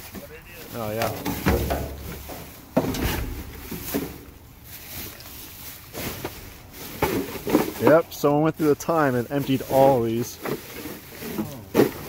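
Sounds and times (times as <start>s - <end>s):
dull knocks in dumpster: 1.2s - 2.1s.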